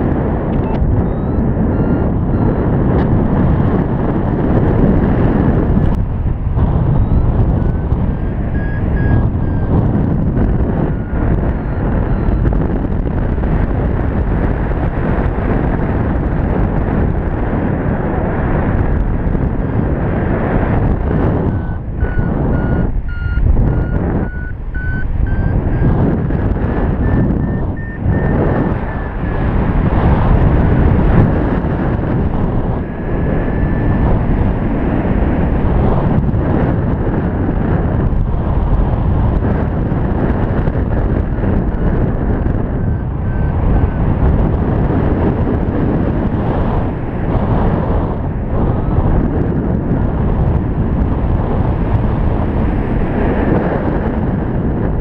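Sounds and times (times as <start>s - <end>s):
wind rushing over microphone: 0.0s - 55.0s
variometer beeping: 0.4s - 4.2s, 6.9s - 14.8s, 20.6s - 35.2s, 40.4s - 48.0s.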